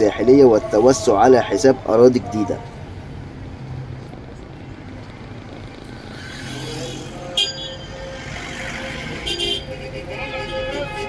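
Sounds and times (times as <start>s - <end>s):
vehicle engines running: 0.0s - 11.0s
car horn beep: 7.2s - 11.0s.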